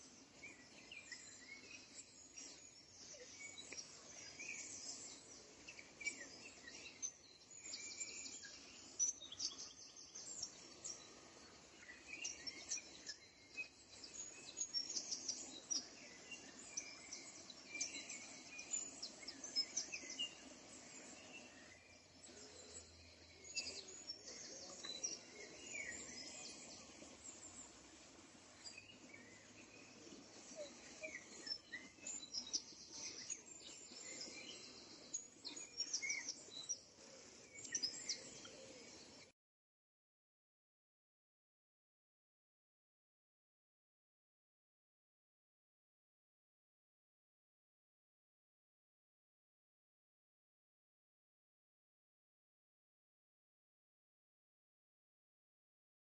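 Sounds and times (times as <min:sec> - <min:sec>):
faint background hiss: 0:00.0 - 0:39.3
birds chirping: 0:00.1 - 0:39.3.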